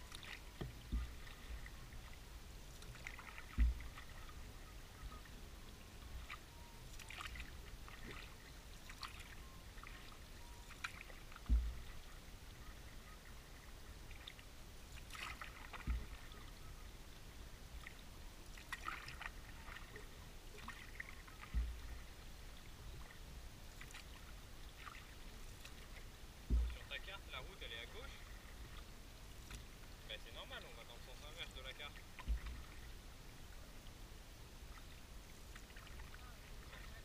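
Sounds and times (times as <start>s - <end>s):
water splashes and drips: 0.0s - 33.0s, 34.7s - 37.0s
paddle dipping through water: 0.0s - 37.0s
deep thuds: 0.6s - 1.3s, 3.5s - 4.0s, 11.4s - 12.0s, 15.8s - 16.2s, 21.4s - 22.0s, 26.4s - 27.1s, 32.2s - 32.7s.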